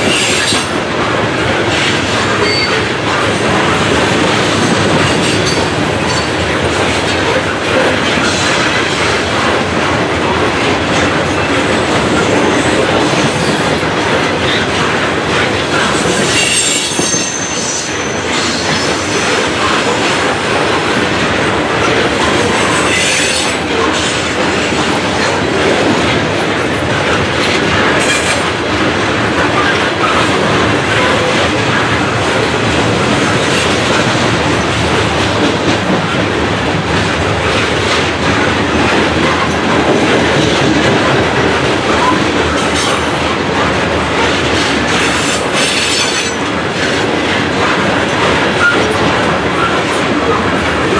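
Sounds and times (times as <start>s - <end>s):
train wheels clattering on rails: 0.0s - 50.9s
high wheel squeals: 16.4s - 19.3s.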